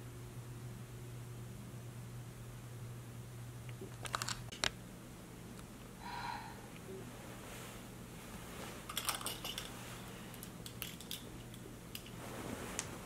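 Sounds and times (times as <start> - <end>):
duvet rustling: 7.1 - 8.9, 9.7 - 10.3, 12.1 - 13.0.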